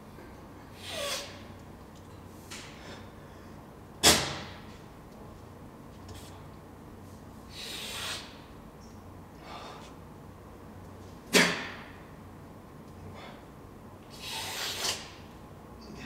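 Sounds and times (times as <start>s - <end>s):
loud sneeze: 4.0s - 4.4s, 11.3s - 11.8s
short breathy hisses: 7.5s - 8.4s, 14.2s - 15.1s.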